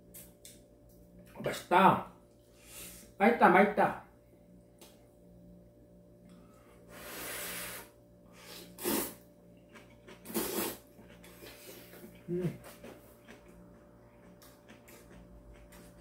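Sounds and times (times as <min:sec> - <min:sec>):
person blowing on food: 0:06.9 - 0:09.2, 0:10.3 - 0:10.9
slurping noodles: 0:06.9 - 0:09.3, 0:10.1 - 0:12.1.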